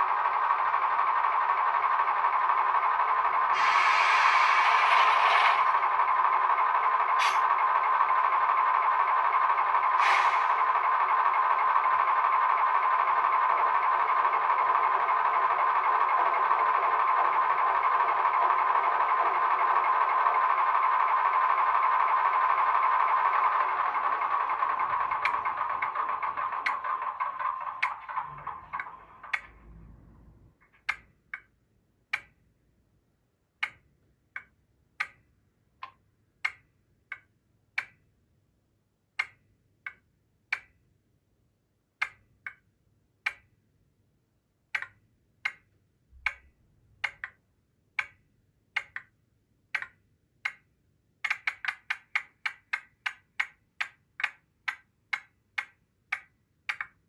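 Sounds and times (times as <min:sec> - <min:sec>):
valves ticking clicks: 0:00.0 - 0:29.6, 0:30.6 - 0:32.5, 0:33.6 - 0:38.1, 0:39.2 - 0:40.8, 0:48.0 - 0:49.2
model locomotive engine sound: 0:00.0 - 0:30.6.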